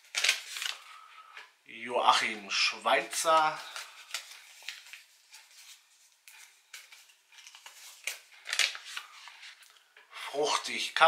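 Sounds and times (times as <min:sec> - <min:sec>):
paper rustling and crinkling: 0:00.0 - 0:01.0, 0:03.1 - 0:09.7.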